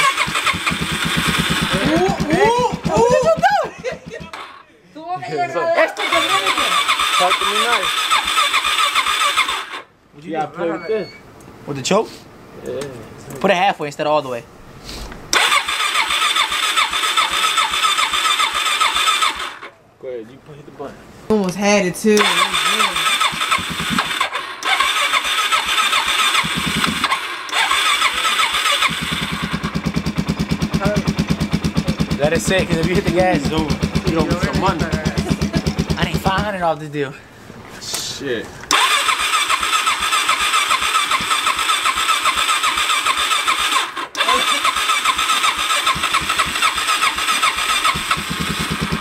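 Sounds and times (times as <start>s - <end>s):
motorcycle electric starter cranking: 0.0s - 3.2s, 6.0s - 9.9s, 15.3s - 19.7s, 22.2s - 36.4s, 38.7s - 49.0s.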